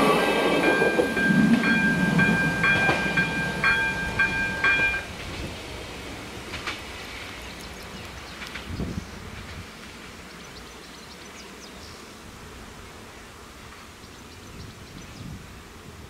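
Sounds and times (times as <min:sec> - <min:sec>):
wind on microphone: 0:08.5 - 0:09.8, 0:14.4 - 0:16.0.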